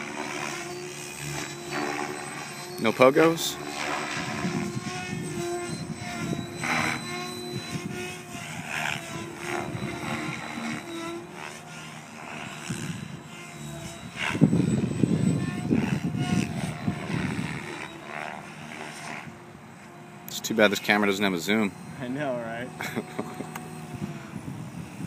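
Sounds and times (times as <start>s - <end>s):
radio-controlled helicopter whine: 0.0s - 25.0s.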